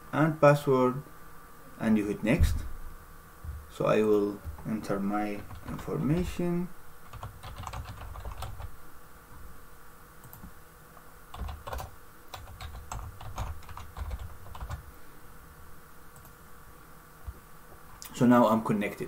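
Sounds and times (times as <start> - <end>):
computer keyboard keys tapping: 5.4 - 6.3, 7.1 - 8.7, 10.2 - 10.5, 11.3 - 14.8.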